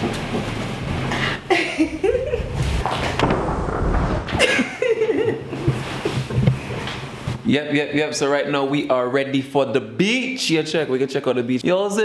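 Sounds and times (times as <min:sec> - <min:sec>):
woman laughing: 0:01.5 - 0:02.8, 0:04.4 - 0:06.2.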